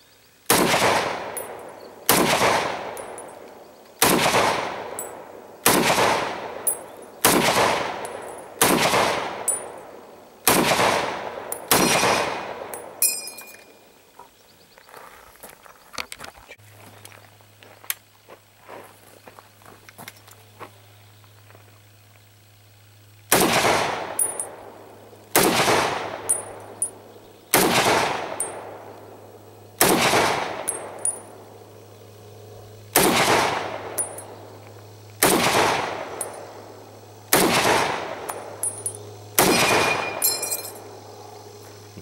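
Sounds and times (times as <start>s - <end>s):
rifle shots: 0.5s - 3.2s, 4.0s - 9.7s, 10.4s - 13.0s, 23.3s - 24.6s, 25.3s - 26.9s, 27.5s - 28.9s, 29.8s - 31.2s, 32.9s - 34.2s, 35.2s - 36.5s, 37.3s - 38.6s, 39.4s - 40.2s
metallic clip ejection ping: 11.5s - 13.8s, 24.2s - 24.6s, 26.2s - 27.0s, 30.6s - 31.3s, 33.9s - 34.4s, 38.2s - 40.8s.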